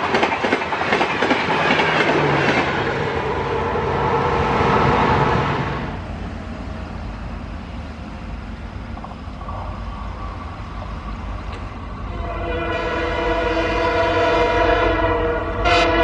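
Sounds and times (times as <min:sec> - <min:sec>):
passing train noise: 0:00.0 - 0:16.0
train low rumble: 0:00.0 - 0:16.0
locomotive horn chord: 0:12.0 - 0:16.0.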